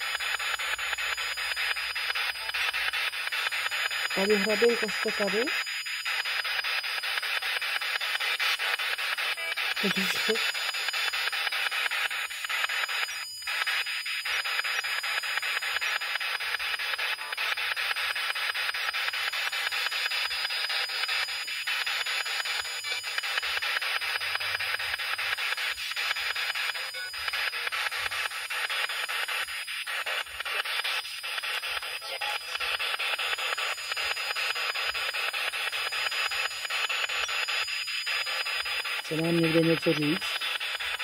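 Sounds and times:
radio scanner static sweeping: 0.0s - 41.0s.

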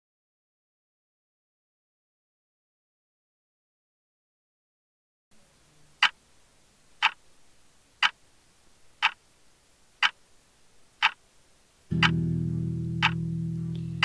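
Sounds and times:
clock ticking: 7.0s - 7.2s, 9.0s - 9.2s, 11.0s - 11.2s, 12.0s - 12.2s, 13.0s - 13.2s.

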